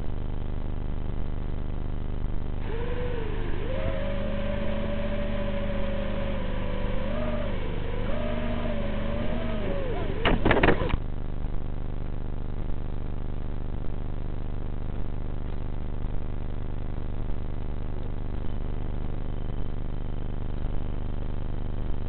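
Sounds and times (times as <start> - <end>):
small electric motor whining: 2.6 - 11.0.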